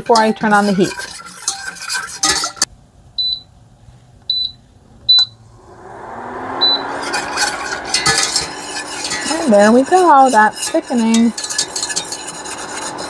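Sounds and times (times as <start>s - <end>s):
whisk scraping in metal saucepan: 0.0s - 2.7s, 6.8s - 13.0s
cooktop hum and whoosh: 3.6s - 13.0s
short high beeps: 6.6s - 6.9s.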